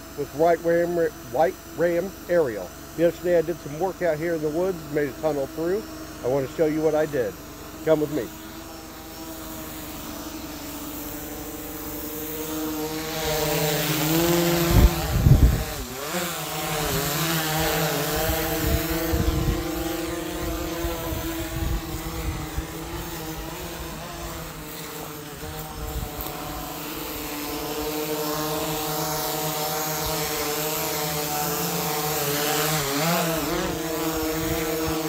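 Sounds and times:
drone propellers whining: 0:00.0 - 0:35.0
wind thumps on microphone: 0:14.7 - 0:15.8.

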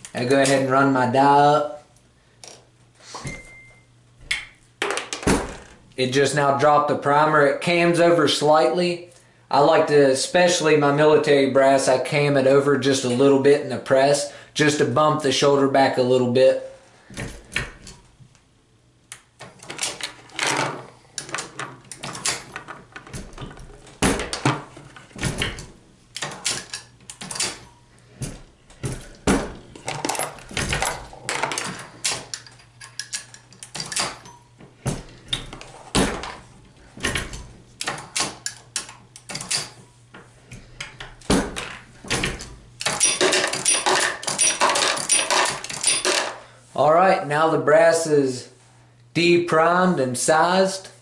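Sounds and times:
reloading press metallic clicks: 0:42.8 - 0:46.4.

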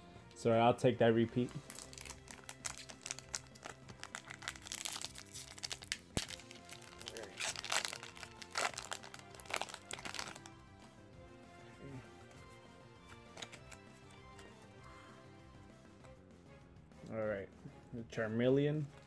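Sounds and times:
background music: 0:00.0 - 0:19.0
foil wrapper crinkling: 0:01.4 - 0:10.5, 0:13.2 - 0:13.8.

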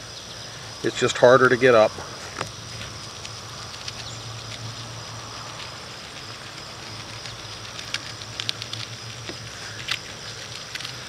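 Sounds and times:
steady low hum: 0:00.0 - 0:11.0
gasket peeling with faint crackles: 0:02.2 - 0:11.0.

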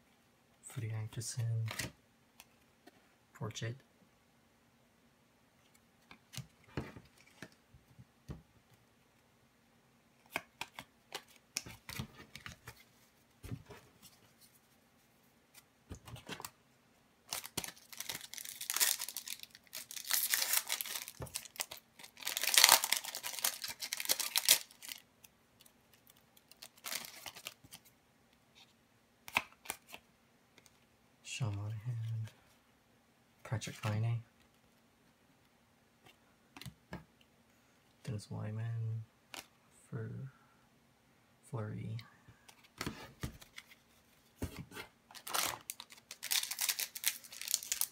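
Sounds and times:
cards clicking and sliding: 0:10.2 - 0:12.8
foil wrapper tearing and crinkling: 0:17.3 - 0:25.0, 0:45.2 - 0:47.9.

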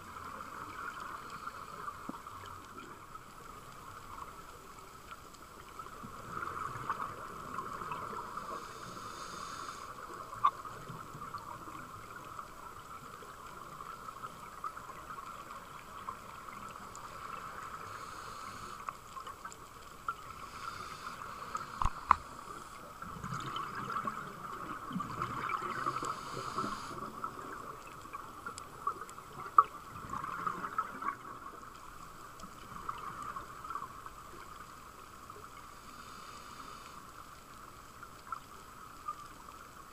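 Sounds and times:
underwater crackling hiss: 0:00.0 - 0:39.9.

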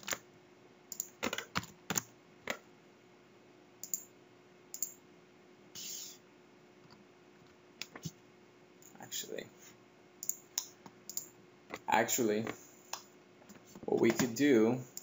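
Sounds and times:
keyboard typing: 0:00.0 - 0:00.2, 0:00.9 - 0:02.0, 0:03.8 - 0:04.0, 0:10.2 - 0:10.4.

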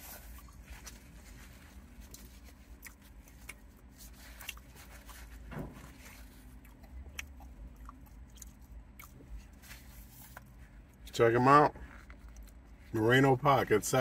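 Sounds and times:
person chewing: 0:00.0 - 0:05.4, 0:06.1 - 0:11.0
low rumble in car cabin: 0:00.0 - 0:14.0.

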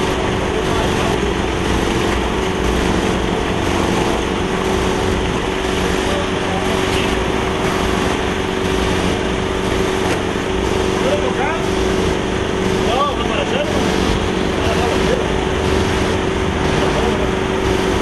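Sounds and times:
engine droning steadily: 0:00.0 - 0:18.0.

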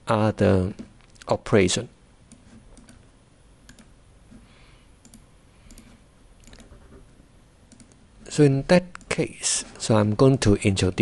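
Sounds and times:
low steady hiss: 0:00.0 - 0:11.0
mouse and keyboard clicks: 0:02.3 - 0:03.0, 0:03.6 - 0:03.9, 0:05.0 - 0:07.0, 0:07.7 - 0:08.0.

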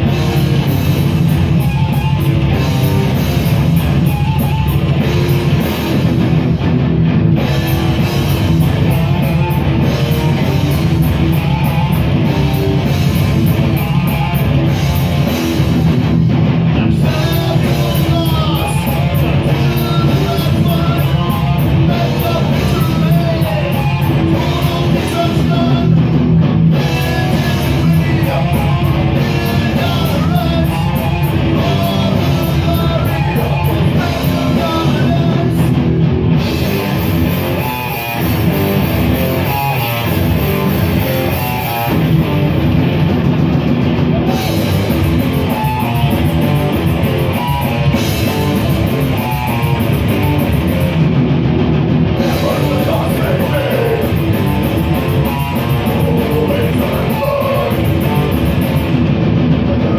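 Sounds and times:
drum kit: 0:00.0 - 0:59.9
electric guitar: 0:00.0 - 0:59.9
person singing: 0:16.8 - 0:26.0, 0:26.8 - 0:35.8, 0:52.2 - 0:58.8.

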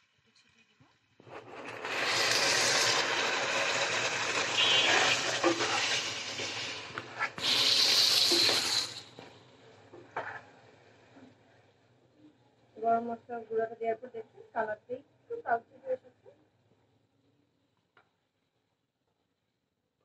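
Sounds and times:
meat sizzling in a pot: 0:01.2 - 0:09.3.

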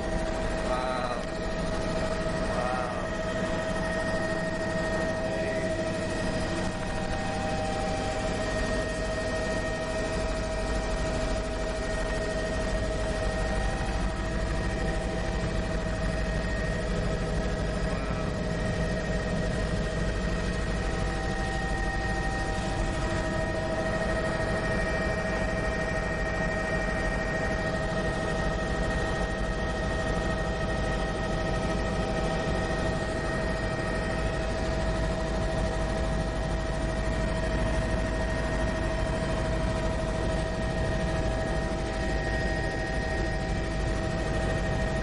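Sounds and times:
high whine: 0:00.0 - 0:10.4, 0:11.0 - 0:21.2
helicopter engine and rotors rumbling: 0:00.0 - 0:45.0.

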